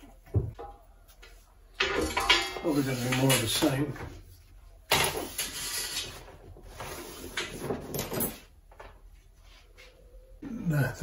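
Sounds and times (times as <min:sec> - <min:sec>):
wire parts rustling and clattering: 0:00.3 - 0:09.1.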